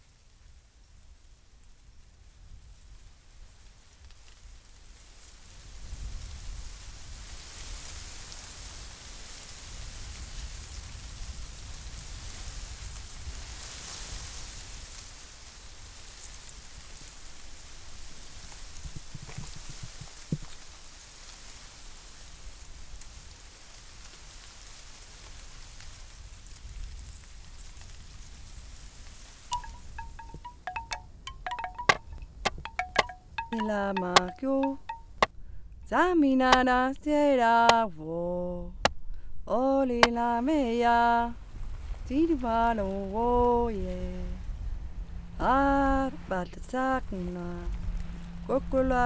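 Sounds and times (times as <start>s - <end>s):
wind rustling dry stalks: 0.0s - 31.9s, 41.0s - 45.8s
bamboo wind chime clacking: 29.5s - 35.3s.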